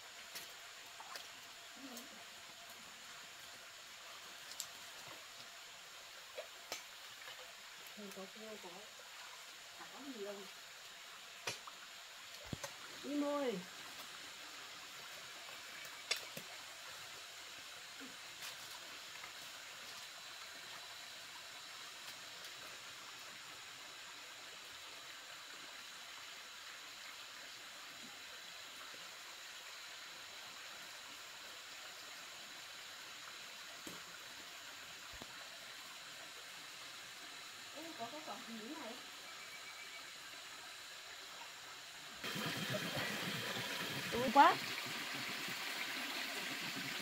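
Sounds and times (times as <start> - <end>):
waterfall rushing: 42.2 - 46.1.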